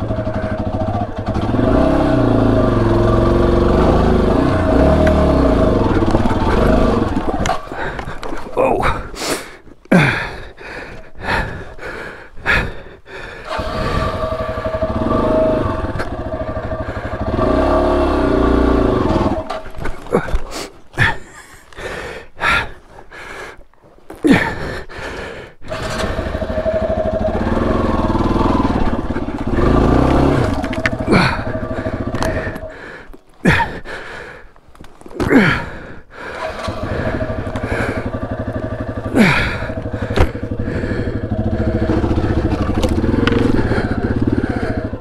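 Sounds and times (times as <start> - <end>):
motorcycle engine revving: 0.0 - 9.1, 12.5 - 20.3, 25.6 - 33.9, 35.3 - 45.0.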